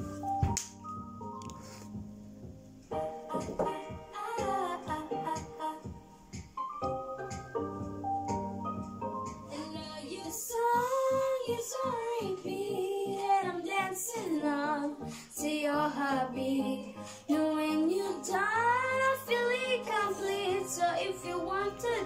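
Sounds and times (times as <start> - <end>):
backing music: 0.0 - 13.1
boy singing pop melody: 3.0 - 6.7, 9.4 - 22.0.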